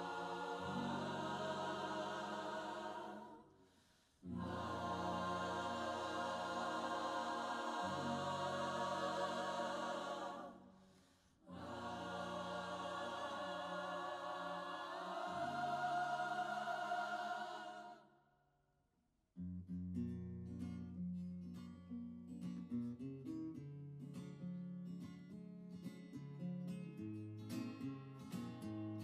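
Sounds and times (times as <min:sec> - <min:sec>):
acoustic guitar strumming: 0:00.0 - 0:03.2
women's choir singing: 0:00.0 - 0:18.1.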